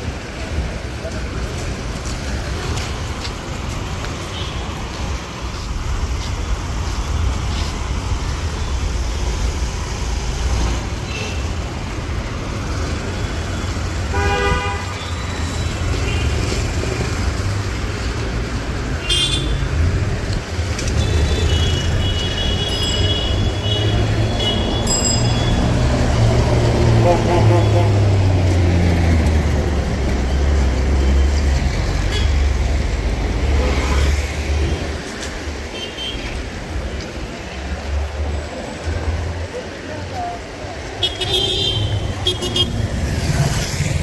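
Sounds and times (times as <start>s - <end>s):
street traffic rumbling: 0.0s - 44.0s
vehicle horn toot: 14.1s - 15.0s, 27.0s - 28.0s.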